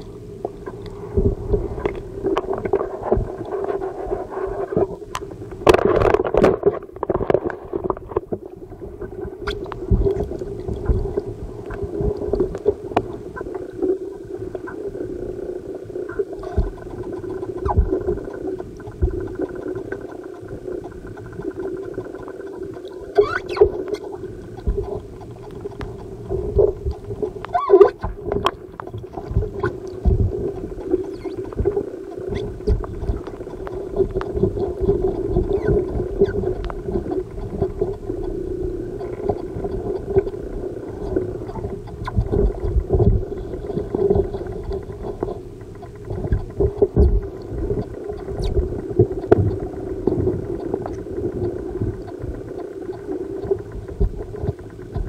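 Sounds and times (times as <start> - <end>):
muffled underwater water rumbling: 0.0 - 55.0
steady underwater hum: 0.0 - 55.0.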